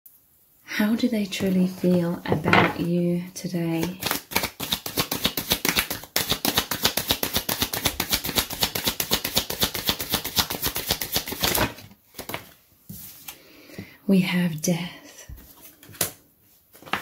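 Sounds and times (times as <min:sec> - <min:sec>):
cards being shuffled: 0:03.8 - 0:12.6, 0:15.4 - 0:17.0.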